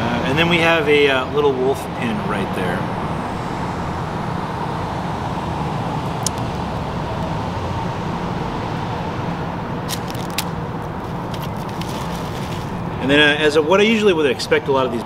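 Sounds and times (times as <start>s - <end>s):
road traffic hum: 0.0s - 15.0s.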